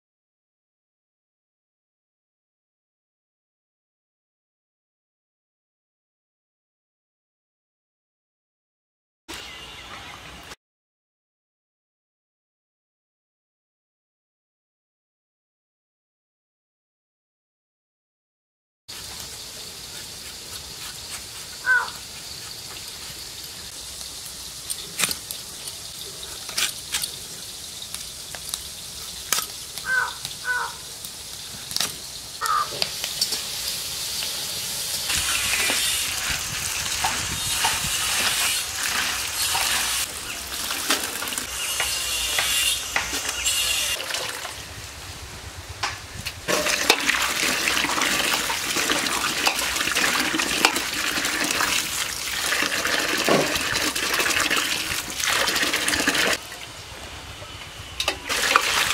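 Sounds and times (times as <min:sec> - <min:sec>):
hands rubbing vegetables: 0:18.9 - 0:27.5
mango peeling scraping ticks: 0:18.9 - 0:30.7
water pouring into steel bowl: 0:35.2 - 0:41.5, 0:44.0 - 0:44.6, 0:46.5 - 0:56.6, 0:58.3 - 0:58.9
water splashing: 0:58.3 - 0:58.9.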